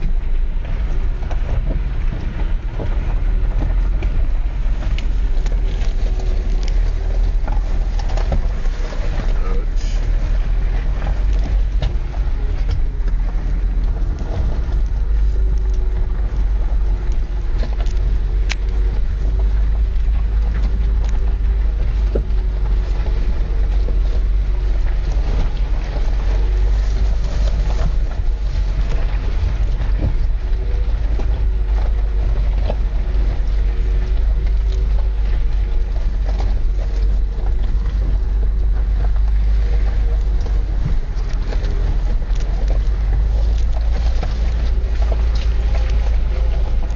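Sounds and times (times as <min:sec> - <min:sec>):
engine and tyres rumbling: 0:00.0 - 0:46.9
faint wavering engine hum: 0:00.0 - 0:46.9
gravel clicks and rattles: 0:00.0 - 0:46.9.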